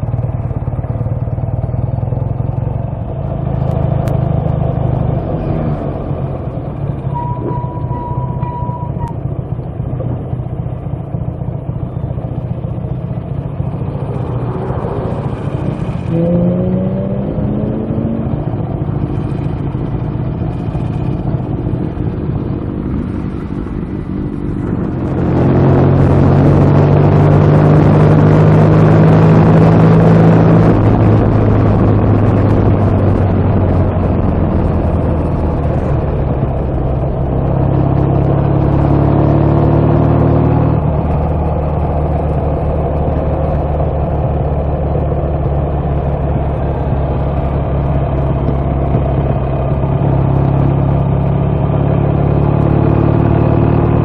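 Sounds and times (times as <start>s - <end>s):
motorcycle engine running: 0.0s - 54.0s
road and wind noise: 0.0s - 54.0s.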